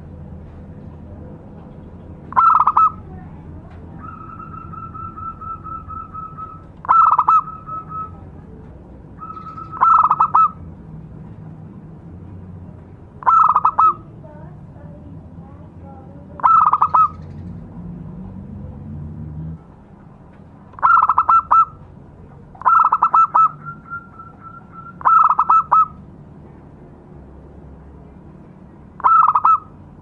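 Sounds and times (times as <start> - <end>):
dove cooing: 2.3 - 3.2, 3.9 - 8.4, 9.2 - 10.6, 13.2 - 14.1, 16.4 - 17.6, 20.8 - 21.8, 22.6 - 26.0, 29.0 - 29.7.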